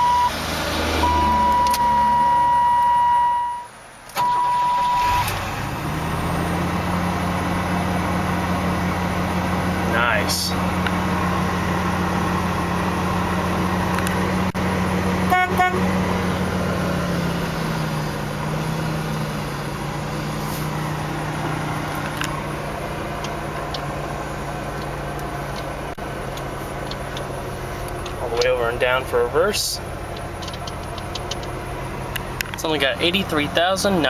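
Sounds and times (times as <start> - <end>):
pickup engine idling: 6.7 - 34.0
car horn toots: 15.2 - 16.0.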